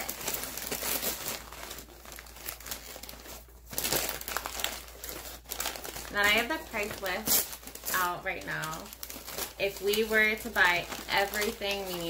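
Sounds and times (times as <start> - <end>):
paper packaging crinkling: 0.0 - 12.0.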